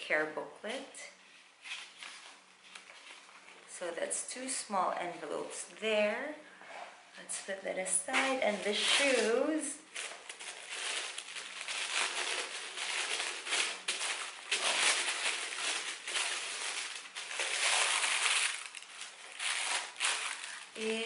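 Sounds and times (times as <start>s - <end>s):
tissue paper crinkling: 8.1s - 21.0s.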